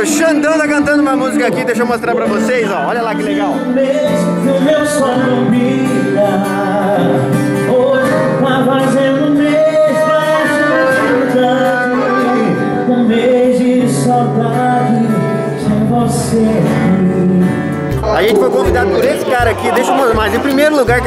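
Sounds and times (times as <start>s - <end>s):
man singing country song: 0.0s - 21.0s
strummed acoustic guitar: 0.1s - 21.0s
accordion: 9.2s - 13.7s, 17.4s - 21.0s.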